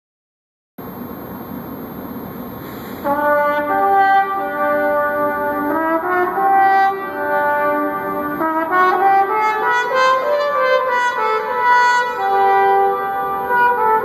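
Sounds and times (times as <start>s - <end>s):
solo trumpet melody: 3.0s - 14.0s.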